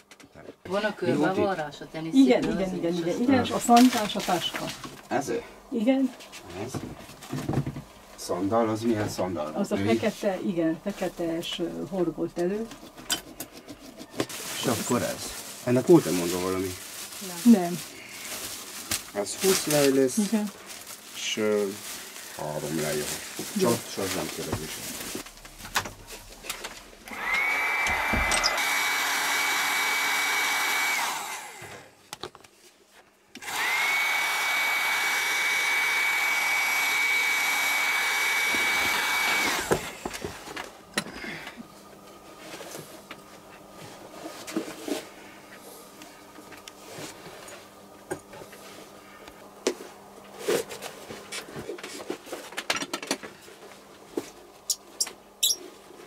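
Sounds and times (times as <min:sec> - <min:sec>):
electric motor tool whine: 0:22.7 - 0:32.0, 0:33.4 - 0:41.5.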